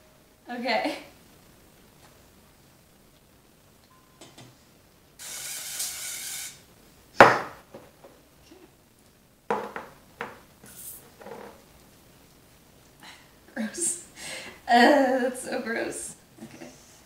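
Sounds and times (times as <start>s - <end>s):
cooking spray hissing: 4.5s - 7.2s.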